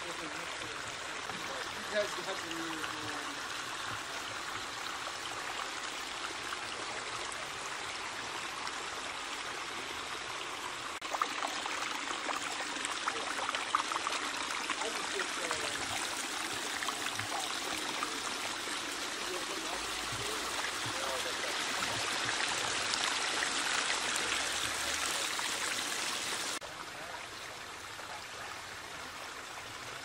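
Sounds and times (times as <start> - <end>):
waterfall splashing on rocks: 0.0 - 5.9, 10.9 - 27.2.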